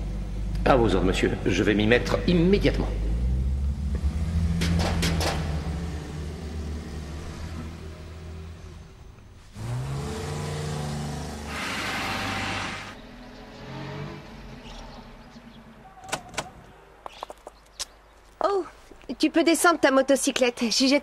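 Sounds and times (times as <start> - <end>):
car engine pulling away: 0.0 - 15.7
car engine revving: 1.3 - 14.8.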